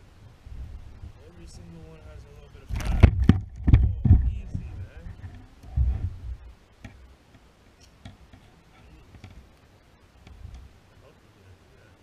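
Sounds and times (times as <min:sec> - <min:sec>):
soft low thump: 0:02.7 - 0:07.1.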